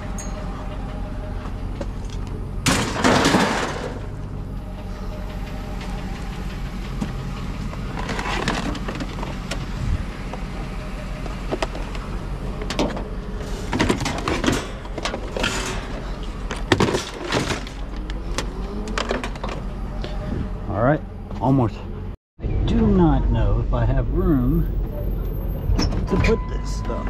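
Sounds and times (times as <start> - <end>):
truck engine idling: 0.0 - 22.2
scrap metal clanking: 2.1 - 4.2, 12.6 - 18.0.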